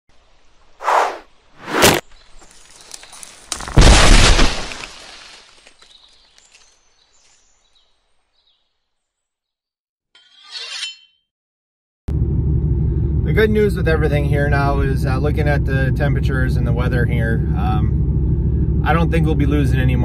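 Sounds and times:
arrow whooshes: 0:00.8 - 0:02.0
tree crashing with deep boom: 0:02.9 - 0:06.4.

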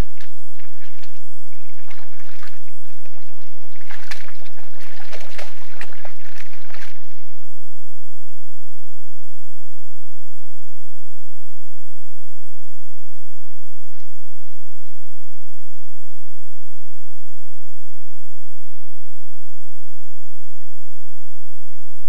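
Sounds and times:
boar squelching in wet mud: 0:00.0 - 0:07.4.

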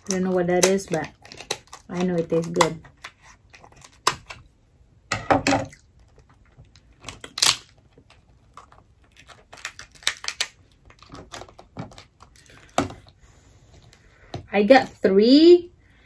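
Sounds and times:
lobster shell cracking: 0:00.0 - 0:04.5, 0:05.4 - 0:12.9.

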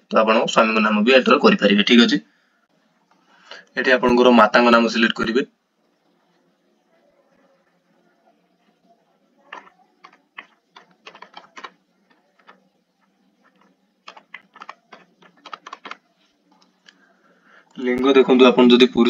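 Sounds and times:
keyboard typing: 0:09.4 - 0:17.0.

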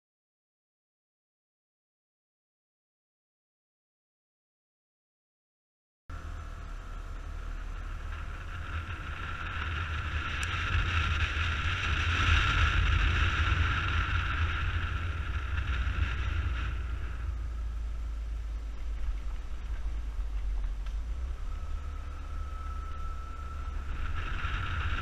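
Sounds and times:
scooter engine drone: 0:06.1 - 0:25.0
wind rumble on microphone: 0:06.1 - 0:25.0.

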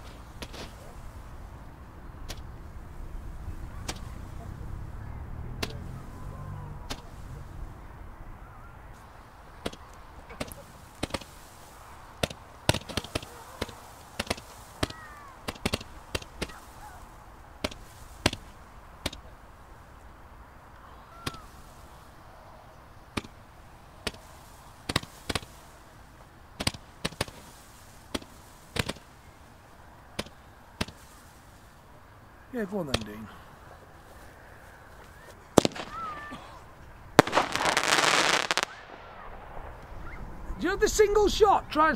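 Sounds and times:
fireworks cracks and bangs: 0:00.0 - 0:04.9, 0:05.5 - 0:07.9, 0:08.9 - 0:20.1, 0:23.0 - 0:31.9, 0:35.1 - 0:41.5
faint firework whistles: 0:05.6 - 0:19.3, 0:20.8 - 0:22.5, 0:34.0 - 0:40.6.

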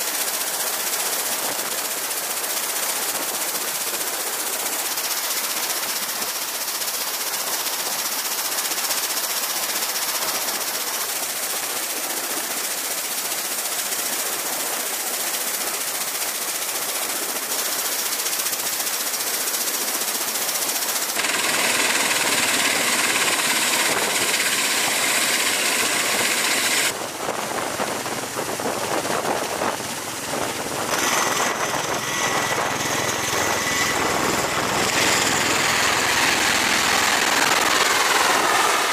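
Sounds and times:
aircraft engine noise: 0:08.8 - 0:38.9
turboshaft engines whining: 0:21.2 - 0:38.9.

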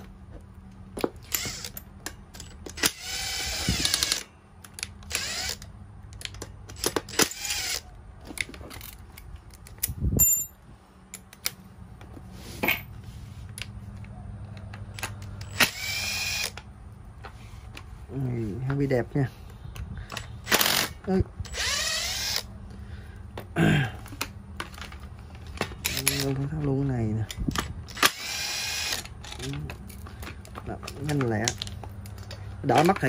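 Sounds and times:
metal parts clinking: 0:00.9 - 0:07.4, 0:08.3 - 0:11.6, 0:28.8 - 0:33.0
power driver spinning: 0:14.9 - 0:16.6, 0:21.5 - 0:22.5.

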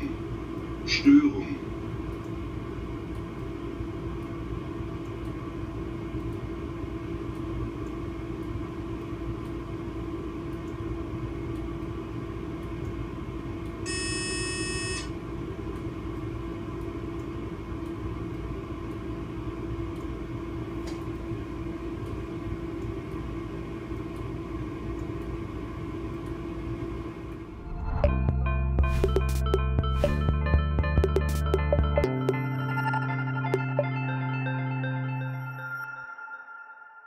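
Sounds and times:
locomotive cab electrical hum: 0:00.0 - 0:35.9
cab warning tone: 0:13.9 - 0:15.1.

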